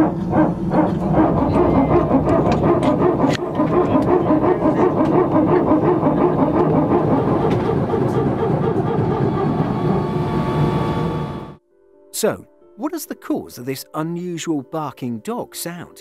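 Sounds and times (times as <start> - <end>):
hydraulic pump barking noise: 0.0 - 11.2.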